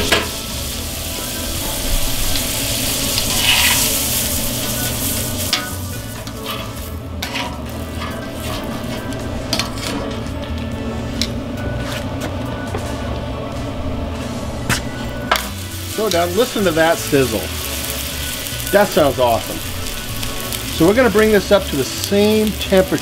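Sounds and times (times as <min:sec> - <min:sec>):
butter sizzling on a griddle: 0:00.0 - 0:10.3, 0:15.0 - 0:23.0
low steady hum: 0:00.0 - 0:22.7
tongs clicking and scraping on metal: 0:03.2 - 0:03.9, 0:05.5 - 0:10.2.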